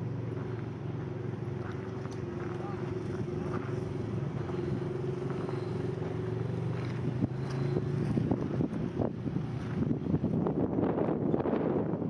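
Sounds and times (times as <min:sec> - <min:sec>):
car engine running: 0:00.0 - 0:11.7
wind buffeting microphone: 0:01.4 - 0:12.0.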